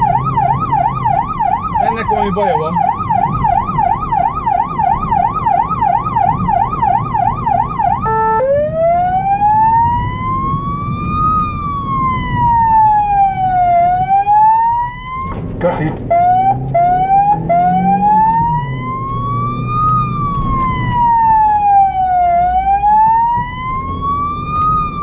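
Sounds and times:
electronic siren yelping and wailing: 0.0 - 15.4, 16.0 - 25.0
road noise: 0.0 - 25.0.

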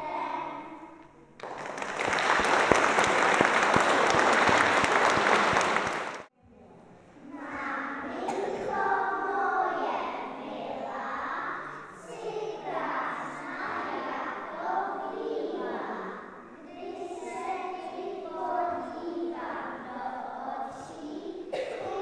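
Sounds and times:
audience clapping: 1.4 - 6.3
children singing: 7.2 - 22.0.

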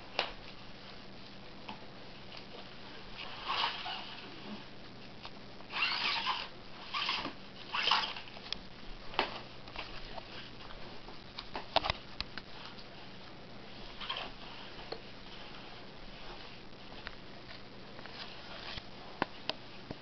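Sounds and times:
cardboard toy rustling scrapes: 18.1 - 18.9.

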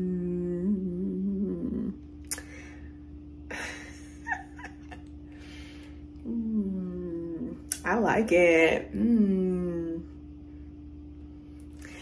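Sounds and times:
woman humming: 0.0 - 2.4, 6.2 - 7.8, 8.9 - 10.2
woman laughing: 3.5 - 5.2.

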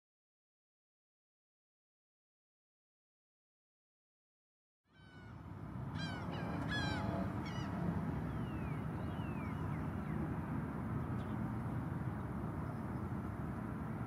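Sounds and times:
osprey whistled calls: 6.0 - 10.2.

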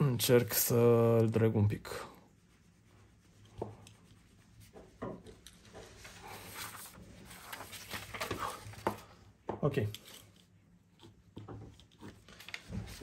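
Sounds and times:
paper sheets rustling: 5.6 - 9.2, 12.0 - 13.0.

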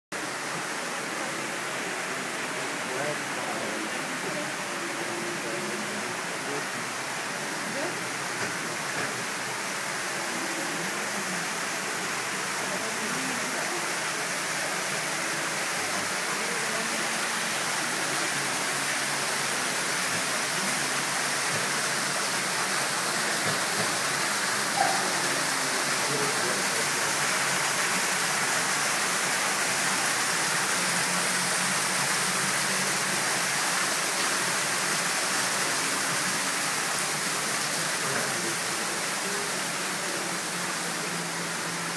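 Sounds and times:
water rushing in a cave: 0.2 - 41.9.

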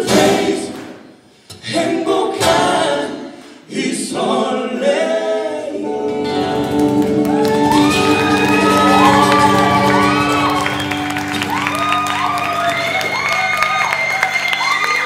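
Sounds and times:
acoustic guitar: 0.0 - 1.8, 6.0 - 14.8.

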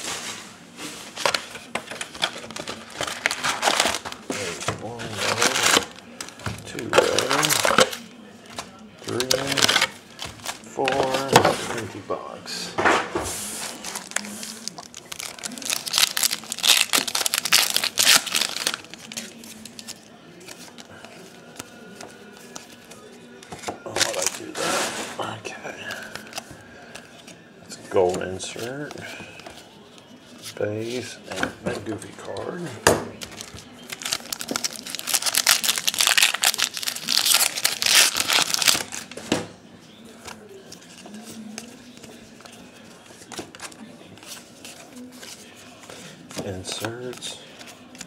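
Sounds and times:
foil wrapper crinkling and tearing: 2.0 - 4.4, 5.0 - 8.0, 9.0 - 11.3, 13.7 - 20.8, 33.2 - 39.2.

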